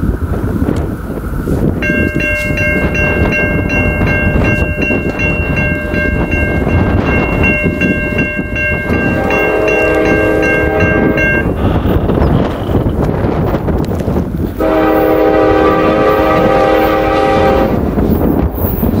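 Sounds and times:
wind rumble on microphone: 0.0 - 19.0
crossing warning bell dinging: 1.7 - 12.9, 14.6 - 19.0
locomotive air horn: 8.9 - 12.9, 14.6 - 17.9.

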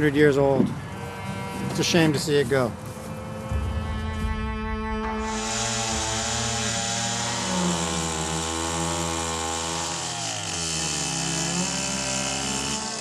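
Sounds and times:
chainsaw cutting wood: 5.2 - 13.0.

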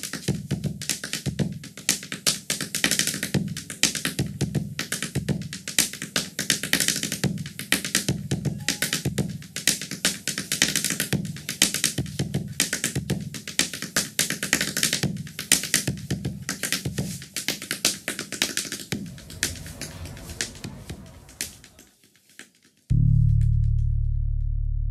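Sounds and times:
steady low tone: 18.8 - 21.9.

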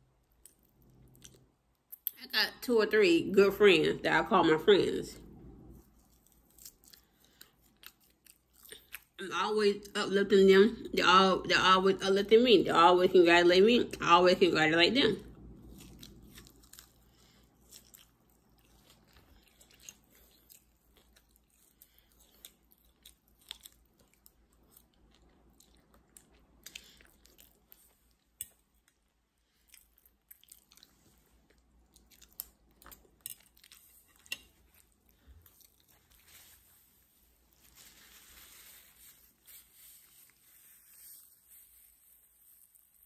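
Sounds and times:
person chewing food: 0.1 - 2.2, 5.3 - 9.2, 15.3 - 40.8.

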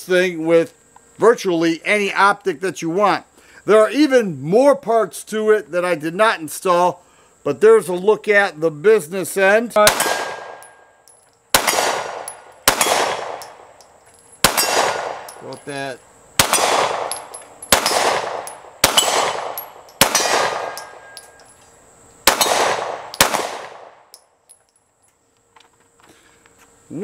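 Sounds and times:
pistol shots: 9.8 - 10.8, 11.5 - 13.7, 14.4 - 15.5, 16.4 - 21.4, 22.2 - 24.1
steel targets clanging: 12.2 - 21.7.

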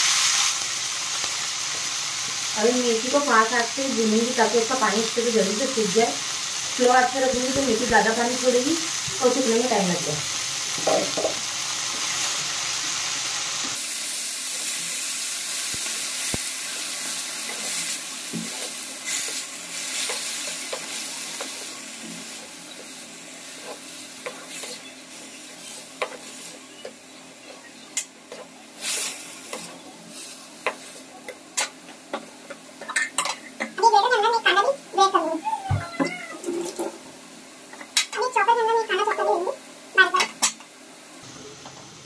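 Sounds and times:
leaves sizzling in hot oil: 0.0 - 31.6.

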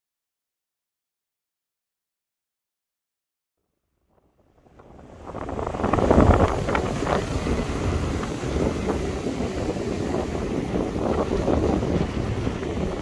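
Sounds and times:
wind buffeting microphone: 4.2 - 13.0
surf breaking on pebble beach: 4.6 - 13.0.

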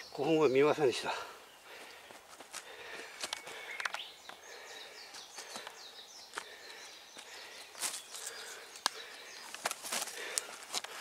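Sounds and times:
faint bird chirps: 2.8 - 9.6.

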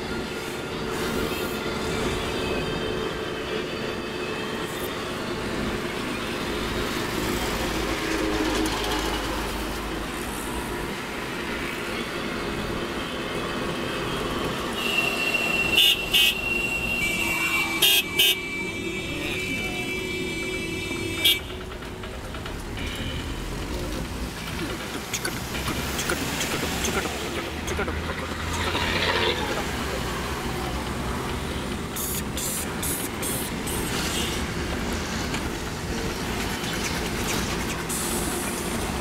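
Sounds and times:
vehicle horns sounding: 14.7 - 21.7.

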